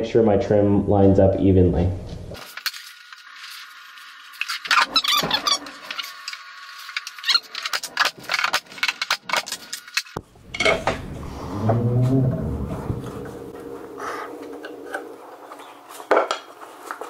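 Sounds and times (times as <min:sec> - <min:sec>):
squeaks: 0:04.5 - 0:06.2, 0:07.0 - 0:07.8.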